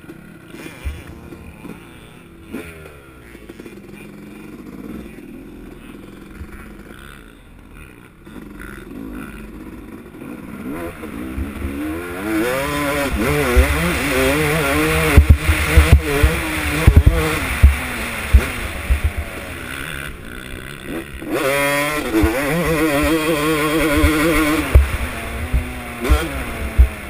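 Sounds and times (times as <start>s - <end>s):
dirt bike engine revving: 0.0s - 27.0s
strong low thumps: 12.8s - 19.5s, 23.9s - 27.0s.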